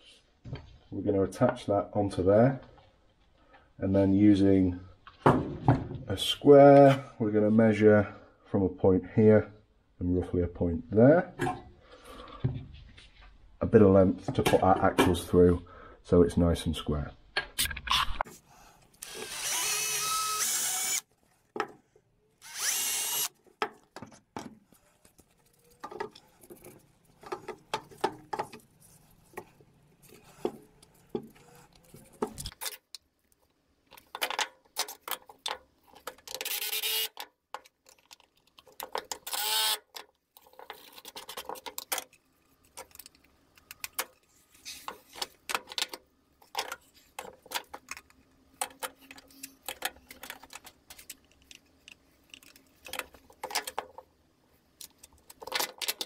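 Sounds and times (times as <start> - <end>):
wood and tools handled: 18.2 - 56.0
cordless drill running: 19.0 - 21.1, 22.4 - 23.3, 36.5 - 37.1, 39.3 - 39.8.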